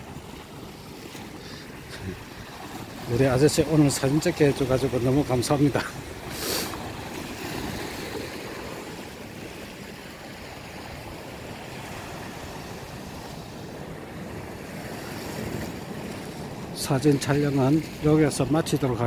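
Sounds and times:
waves washing on rocky shore: 0:00.0 - 0:19.0.

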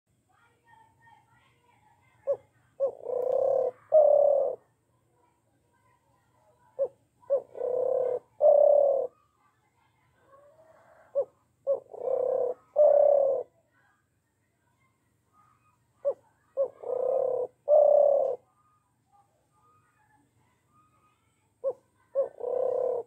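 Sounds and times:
dove cooing: 0:02.2 - 0:04.7, 0:06.6 - 0:09.2, 0:10.4 - 0:13.5, 0:15.6 - 0:18.5, 0:21.6 - 0:23.0.

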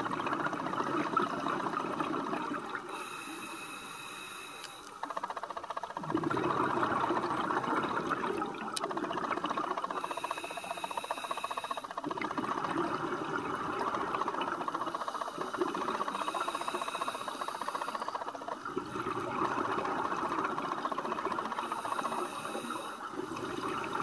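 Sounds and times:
exhaled bubbles rumbling: 0:00.0 - 0:03.0, 0:05.1 - 0:10.1, 0:12.0 - 0:24.0
whistling inhale through regulator: 0:02.9 - 0:05.0, 0:09.9 - 0:12.0, 0:14.9 - 0:18.2, 0:21.6 - 0:24.0.

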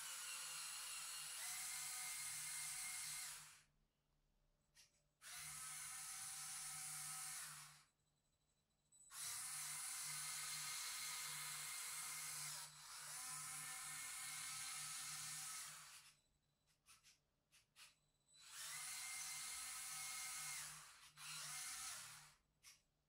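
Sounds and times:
toy truck electric motors whining: 0:00.0 - 0:03.7, 0:05.2 - 0:07.9, 0:09.1 - 0:16.2, 0:18.4 - 0:22.8.

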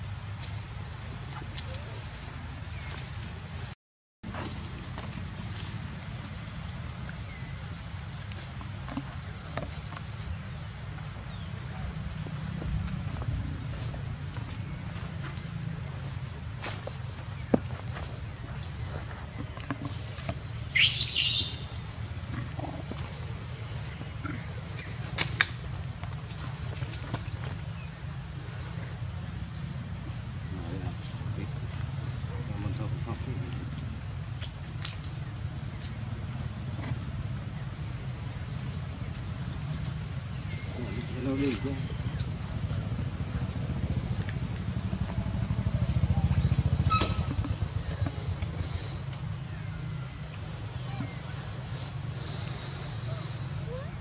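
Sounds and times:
small engine running: 0:41.2 - 0:49.1
monkey screaming shrilly: 0:46.8 - 0:47.5
monkey high squeak: 0:46.8 - 0:47.6.

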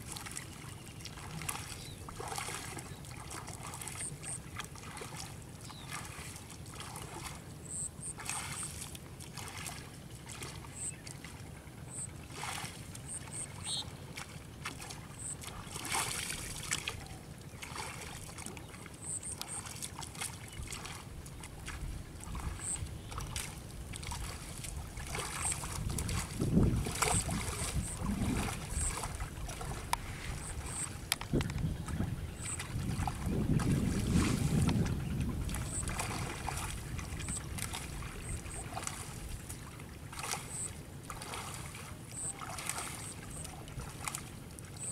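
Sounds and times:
shallow water splashing: 0:00.0 - 0:44.9
wind rumbling on microphone: 0:20.5 - 0:39.6.

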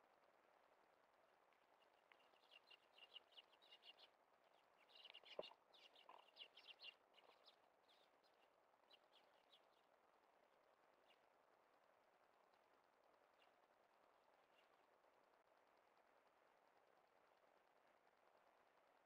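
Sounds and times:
sparrows chirping: 0:01.8 - 0:09.9.

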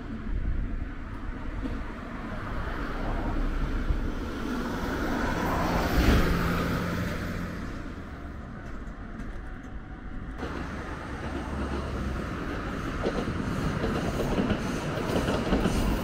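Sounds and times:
road traffic passing: 0:00.0 - 0:16.0.

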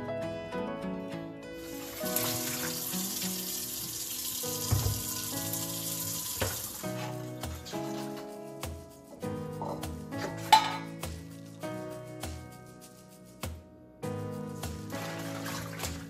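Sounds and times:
tap running into steel sink: 0:04.6 - 0:05.2, 0:06.3 - 0:07.1
dull knock: 0:04.7 - 0:05.0.

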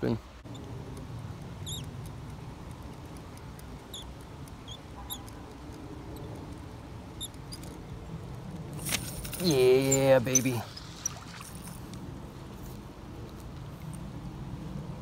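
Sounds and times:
low outdoor rumble: 0:00.0 - 0:15.0
small bird chirping: 0:00.4 - 0:08.1, 0:09.4 - 0:11.6.

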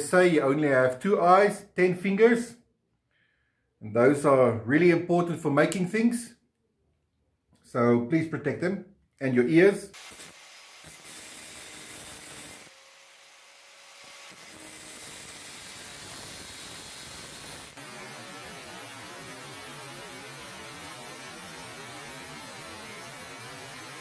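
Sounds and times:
angle grinder cutting steel: 0:10.0 - 0:24.0.

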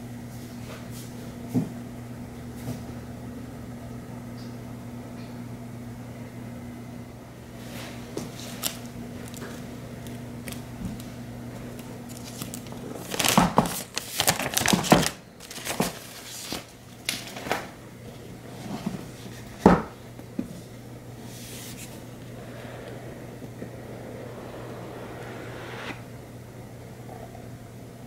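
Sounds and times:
low steady hum: 0:20.8 - 0:26.7.

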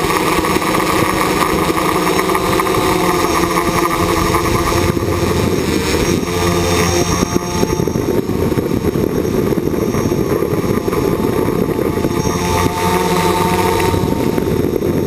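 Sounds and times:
aircraft motors buzzing: 0:00.0 - 0:15.0
rushing air noise: 0:00.0 - 0:15.0.

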